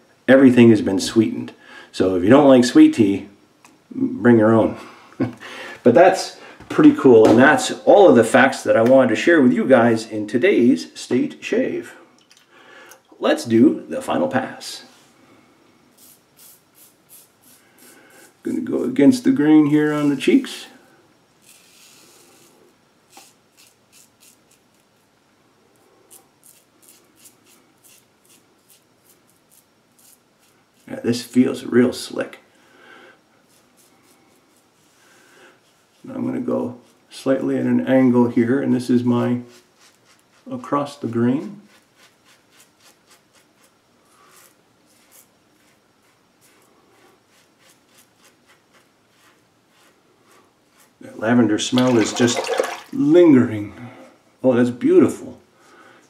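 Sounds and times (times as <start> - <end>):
razor scraping stubble: 15.9 - 18.5, 21.4 - 24.8, 26.1 - 31.1, 33.4 - 34.6, 39.4 - 52.3.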